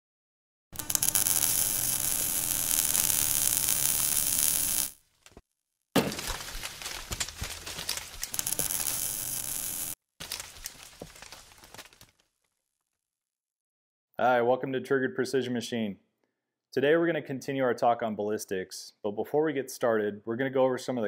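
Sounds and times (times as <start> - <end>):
dense crackling hiss: 0.8 - 5.0, 8.2 - 10.0
scattered crackles: 0.8 - 5.4, 6.1 - 12.5.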